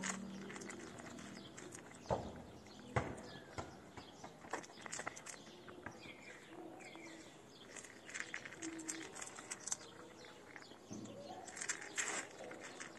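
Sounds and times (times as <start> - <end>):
cat crunching dry kibble: 0.0 - 2.1, 4.5 - 5.8, 7.6 - 12.9.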